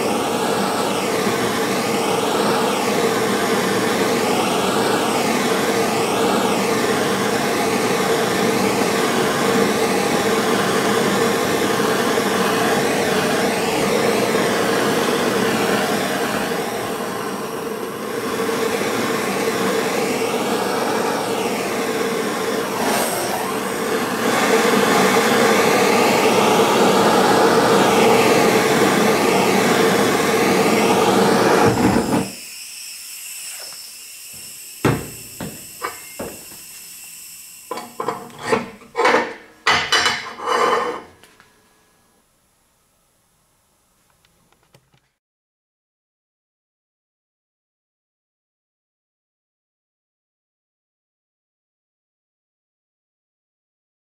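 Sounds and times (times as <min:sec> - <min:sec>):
gas torch roaring: 0:00.0 - 0:39.4.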